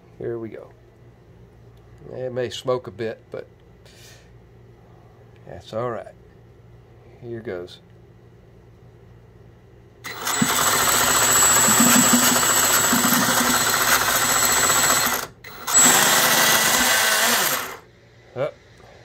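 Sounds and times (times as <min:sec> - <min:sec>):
engine cranked by electric starter: 0:10.0 - 0:17.8.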